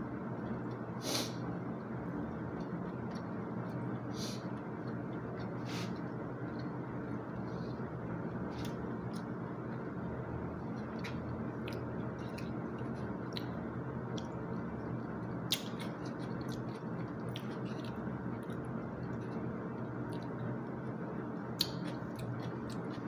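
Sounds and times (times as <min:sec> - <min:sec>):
low background hum: 0:00.0 - 0:23.0
chewing: 0:02.5 - 0:03.8, 0:10.6 - 0:14.3, 0:15.5 - 0:19.4, 0:21.6 - 0:23.0.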